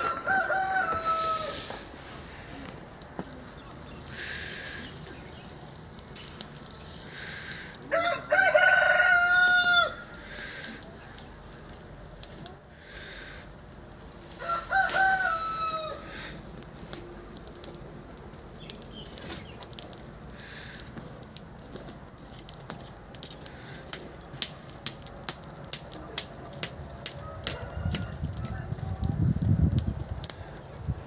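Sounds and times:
rooster crowing: 0:00.0 - 0:01.8, 0:07.9 - 0:10.2, 0:14.3 - 0:16.3, 0:27.1 - 0:29.2
straw fire crackling and popping: 0:00.0 - 0:31.0.

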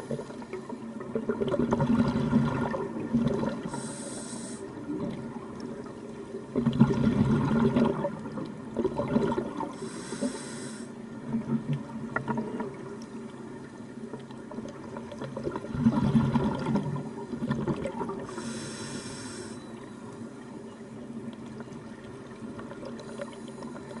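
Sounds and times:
regulator inhale hiss: 0:03.6 - 0:04.8, 0:09.7 - 0:11.0, 0:18.3 - 0:19.8.

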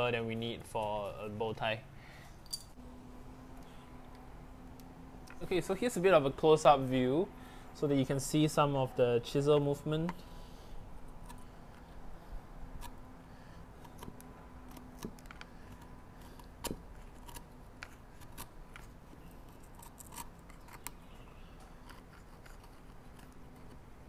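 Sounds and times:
chisel paring wood: 0:13.8 - 0:23.9.

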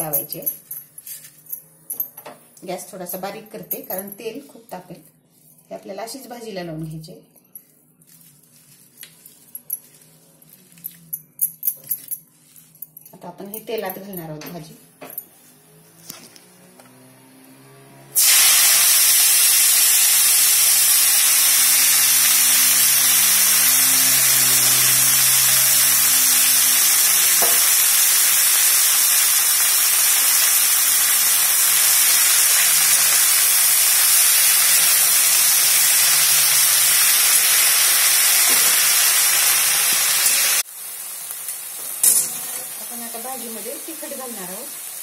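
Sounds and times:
leaves sizzling in hot oil: 0:18.2 - 0:45.0.

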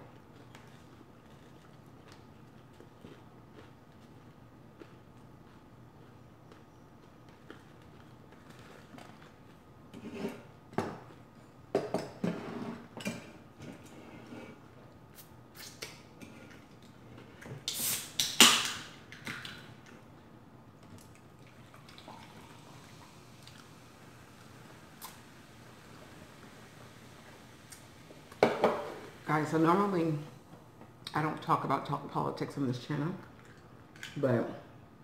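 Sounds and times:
chewing: 0:00.3 - 0:09.6.

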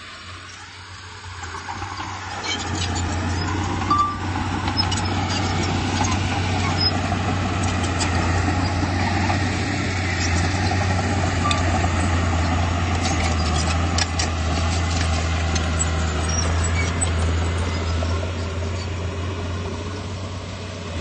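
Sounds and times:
bulldozer diesel engine running: 0:00.0 - 0:21.0.

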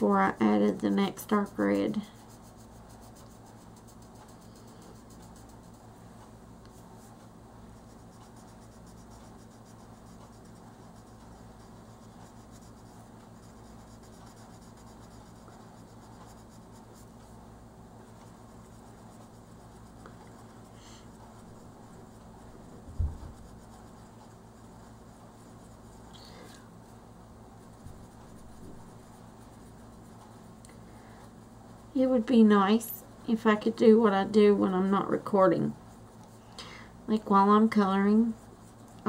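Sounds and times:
pencil scratching on paper: 0:00.0 - 0:06.0, 0:06.7 - 0:26.1, 0:26.7 - 0:30.6, 0:37.2 - 0:39.0
low electrical hum: 0:00.0 - 0:39.0
dull low bump: 0:22.8 - 0:23.4.

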